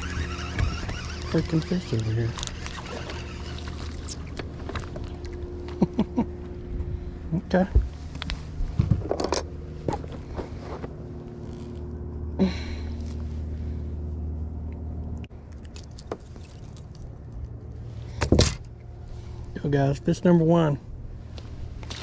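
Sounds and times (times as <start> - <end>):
electric trolling motor humming: 0.0 - 8.6
clicks and rustles of fishing line: 0.3 - 5.4, 15.2 - 17.5.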